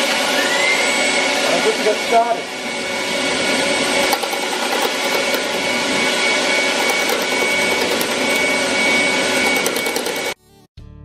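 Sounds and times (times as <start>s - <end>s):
dust extractor running: 0.0s - 10.4s
wood lathe gouge cutting: 3.8s - 10.4s.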